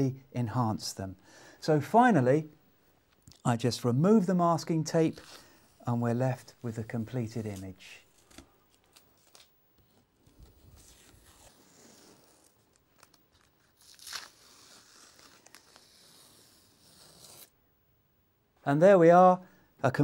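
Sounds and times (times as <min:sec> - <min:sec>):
masking tape peeling: 0:10.2 - 0:17.5.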